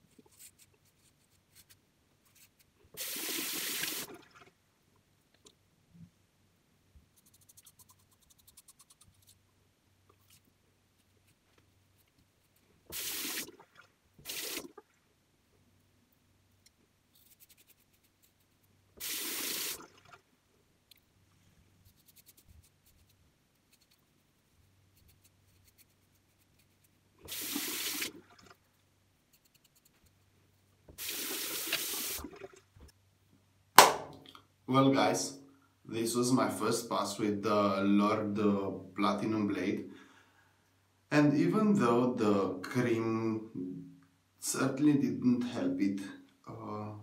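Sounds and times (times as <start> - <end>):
bathroom tap running: 3.0 - 4.4, 12.9 - 14.8, 19.0 - 20.2, 27.3 - 28.4, 31.0 - 32.5
razor blade scratching stubble: 17.2 - 18.4.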